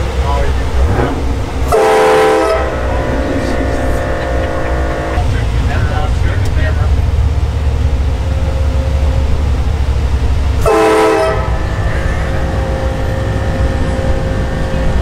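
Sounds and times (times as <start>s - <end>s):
truck engine rumble: 0.0s - 15.0s
train horn chord: 0.9s - 5.3s, 10.6s - 15.0s.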